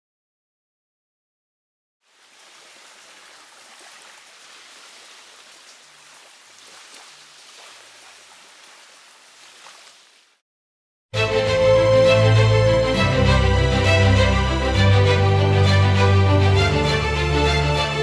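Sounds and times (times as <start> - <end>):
rushing water with splashes: 2.0 - 10.4.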